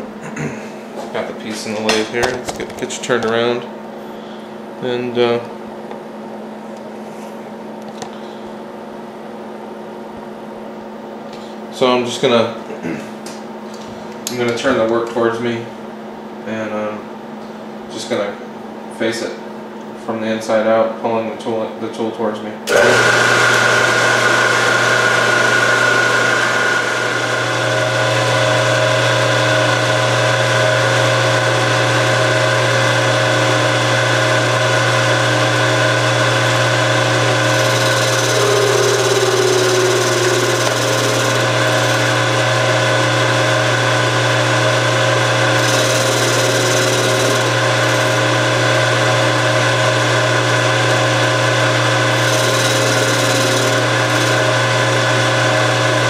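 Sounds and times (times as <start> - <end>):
lathe motor humming and whining: 22.7 - 56.0
hissing metal cutting: 37.0 - 43.7, 45.4 - 49.2, 51.0 - 55.3.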